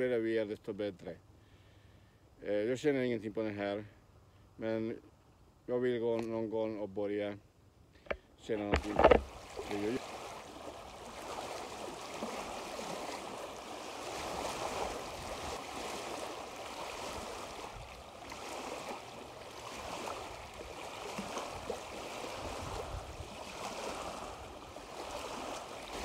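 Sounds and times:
shallow water splashing: 8.5s - 26.0s
small waves lapping on beach: 8.6s - 26.0s
wind rumble on microphone: 14.7s - 15.6s, 21.4s - 24.6s.

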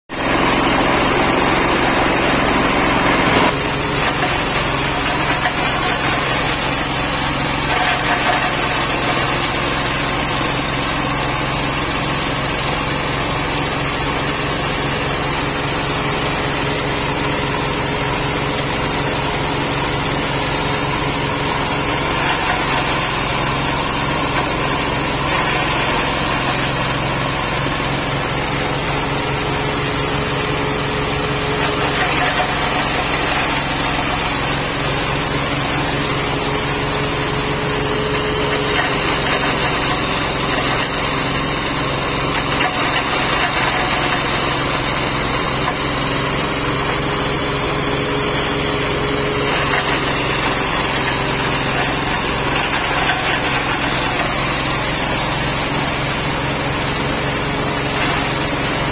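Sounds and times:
grinder machine and diesel engine: 0.1s - 58.9s.

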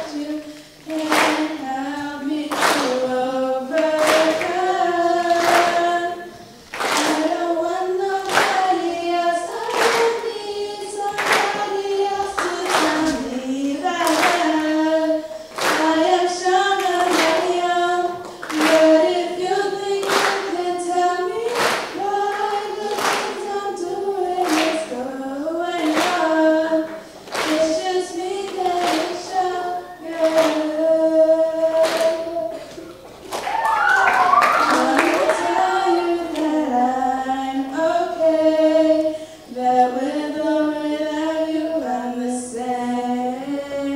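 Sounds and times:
steady hand claps: 0.0s - 7.4s, 8.0s - 8.9s, 9.5s - 10.4s, 11.0s - 13.2s, 14.0s - 14.7s, 15.5s - 20.6s, 21.3s - 25.0s, 25.7s - 29.4s, 30.2s - 30.7s, 31.8s - 36.6s
girls singing together: 0.0s - 43.9s.

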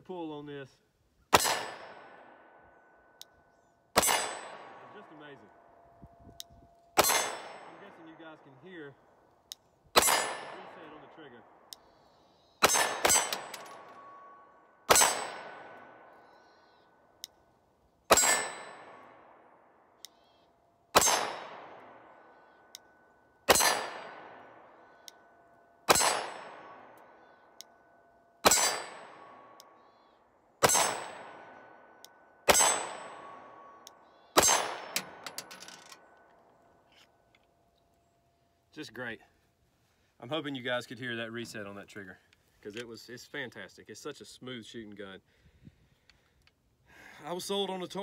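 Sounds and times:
pistol shots echoing: 1.3s - 2.6s, 3.9s - 5.4s, 7.0s - 8.7s, 9.9s - 11.8s, 12.6s - 16.2s, 18.1s - 19.6s, 20.9s - 22.8s, 23.4s - 25.1s, 25.8s - 27.5s, 28.4s - 29.8s, 30.6s - 35.4s
steel target ringing: 28.4s - 29.6s.

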